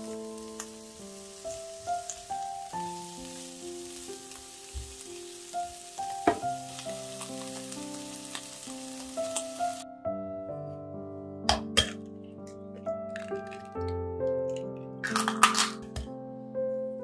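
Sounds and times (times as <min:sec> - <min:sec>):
onions sizzling in a frying pan: 0:00.0 - 0:09.8
soft background music: 0:00.0 - 0:17.0.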